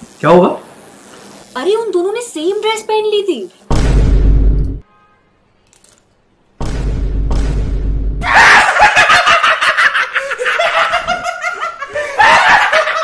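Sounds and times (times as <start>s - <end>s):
noise burst with deep rumble: 3.7s - 4.8s
men laughing loudly: 8.2s - 13.0s.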